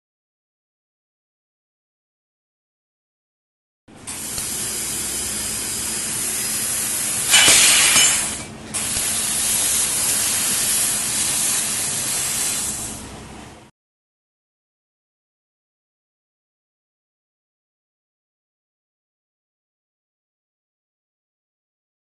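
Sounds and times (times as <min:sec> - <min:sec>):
low machine hum: 0:03.9 - 0:13.7
hiss of cutting gas: 0:04.0 - 0:13.1.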